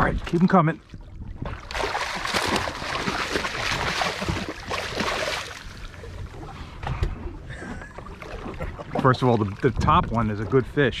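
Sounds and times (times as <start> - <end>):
fish splashing in water: 1.4 - 5.9.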